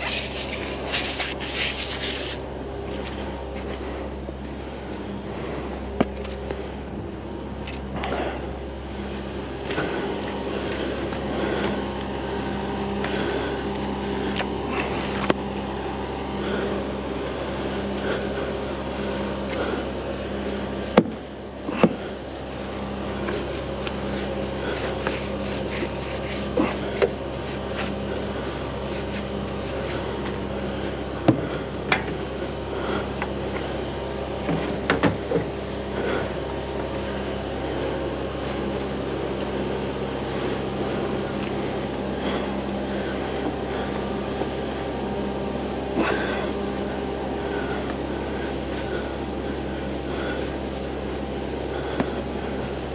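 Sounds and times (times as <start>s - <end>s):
brush scrubbing: 0.0s - 4.0s, 17.6s - 34.9s
machine humming: 0.0s - 52.9s.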